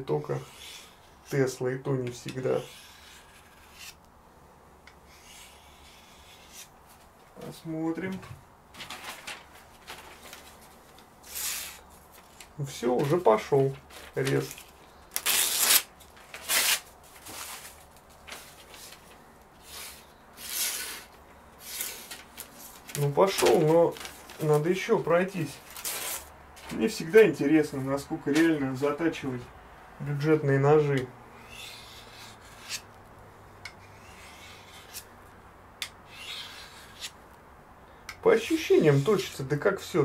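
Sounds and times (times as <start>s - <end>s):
rasping strokes of a knife blade: 2.6s - 4.0s, 5.1s - 6.7s, 31.4s - 32.9s, 33.7s - 35.1s, 35.8s - 37.2s.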